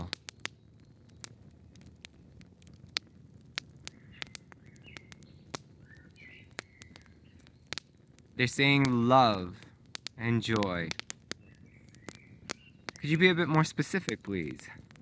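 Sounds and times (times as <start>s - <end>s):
small sharp clicks and crackles: 0.0s - 15.0s
faint high bird chirps: 3.9s - 7.7s, 11.4s - 13.2s.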